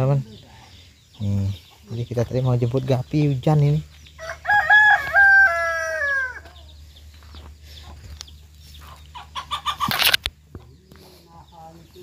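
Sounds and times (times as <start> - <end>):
rooster crowing: 4.2 - 6.8.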